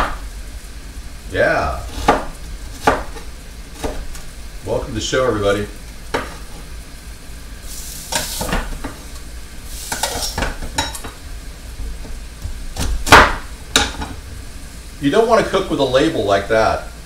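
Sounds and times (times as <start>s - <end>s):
onions sizzling in oil: 0.0s - 17.0s.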